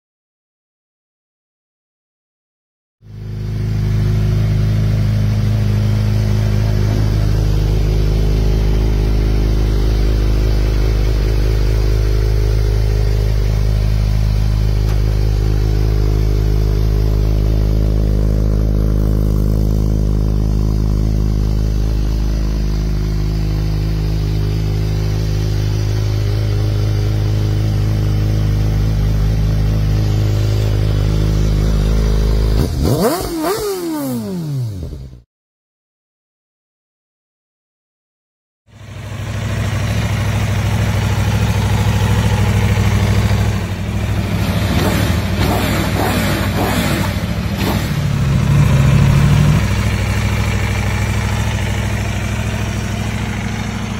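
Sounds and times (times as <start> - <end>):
motorcycle engine idling: 3.0 - 33.2, 38.7 - 53.9.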